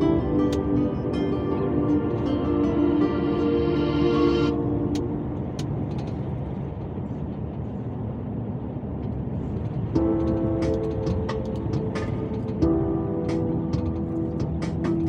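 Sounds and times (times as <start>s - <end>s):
background music: 0.0s - 5.9s, 10.0s - 15.0s
truck engine and road rumble: 0.0s - 15.0s.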